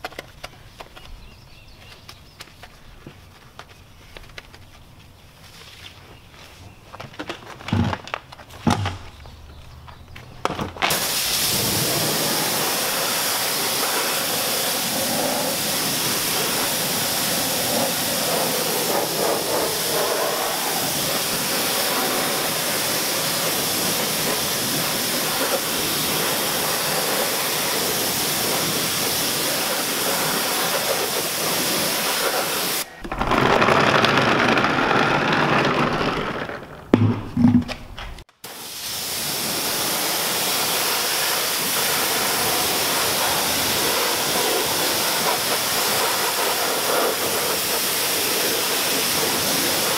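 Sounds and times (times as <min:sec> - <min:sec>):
rush of water: 0:10.9 - 0:32.6
pressure washer spray hissing: 0:10.9 - 0:32.9, 0:38.4 - 0:49.9.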